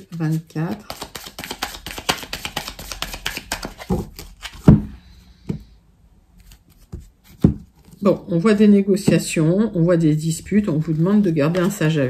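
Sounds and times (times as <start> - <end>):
cards shuffling: 0.0 - 4.8, 10.6 - 12.0.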